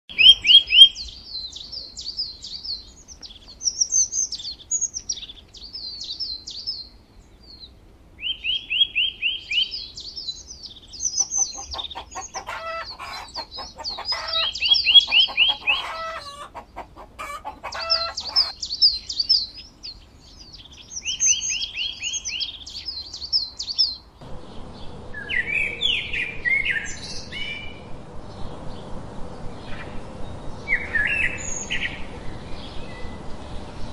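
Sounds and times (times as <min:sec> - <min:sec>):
birds chirping: 0:00.1 - 0:33.9
bird trills: 0:08.2 - 0:16.6, 0:17.2 - 0:23.9.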